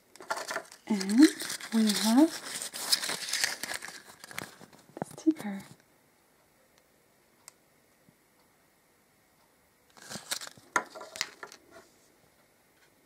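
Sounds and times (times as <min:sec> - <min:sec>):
hands handling toys and packaging: 0:00.2 - 0:05.8, 0:09.9 - 0:11.6.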